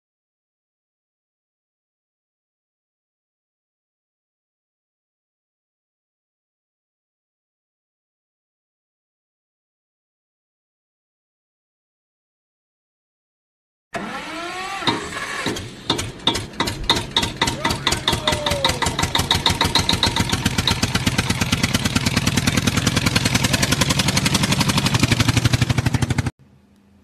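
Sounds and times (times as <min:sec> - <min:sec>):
engine starting and chugging: 0:14.0 - 0:26.3.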